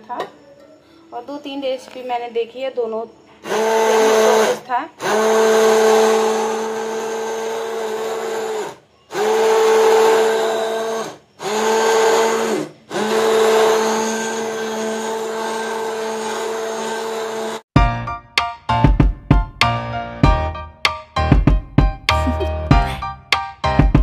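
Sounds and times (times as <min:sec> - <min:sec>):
hand blender motor hum: 0:03.4 - 0:17.6.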